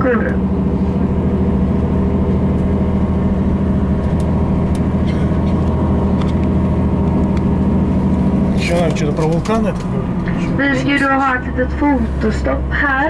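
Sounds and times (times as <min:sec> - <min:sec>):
bus engine drone: 0:00.0 - 0:13.0
road noise: 0:00.0 - 0:13.0.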